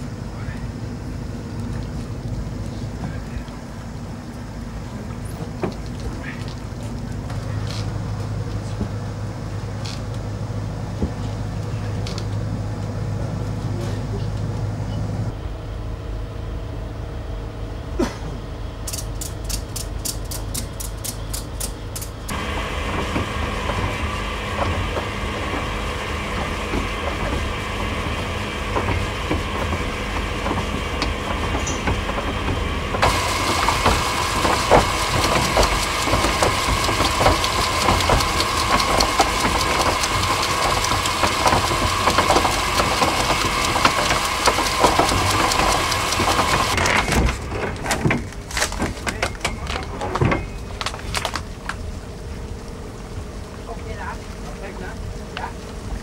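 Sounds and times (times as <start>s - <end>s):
anchor windlass motor hum: 0.0s - 56.0s
low engine rumble: 0.0s - 56.0s
evenly spaced clicks: 18.9s - 22.3s, 33.0s - 46.8s.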